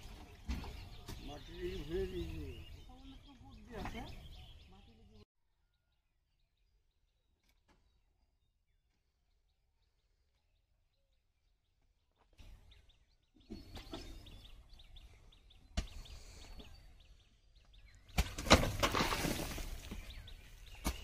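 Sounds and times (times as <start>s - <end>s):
birds chirping: 0.0s - 21.0s
soil tipped into trolley: 18.2s - 20.0s.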